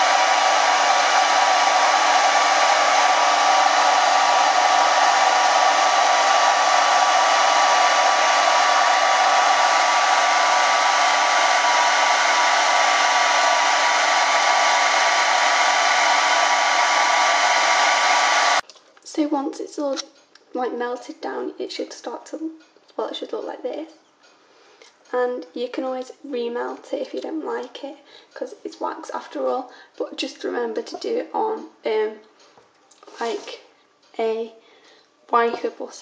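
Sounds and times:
hair dryer blowing air: 0.0s - 18.6s.

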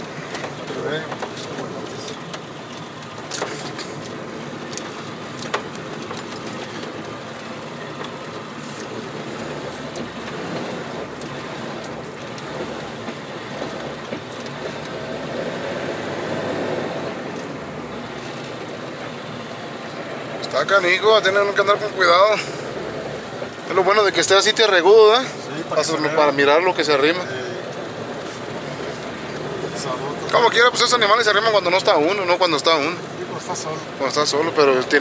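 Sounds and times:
vehicle engine and tyre noise: 0.0s - 35.0s
sharp clicks and knocks: 0.3s - 7.1s.

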